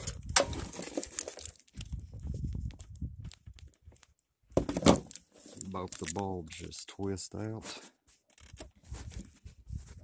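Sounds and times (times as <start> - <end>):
plastic clicks and crinkling: 0.0 - 2.0, 4.8 - 6.8, 8.3 - 8.8.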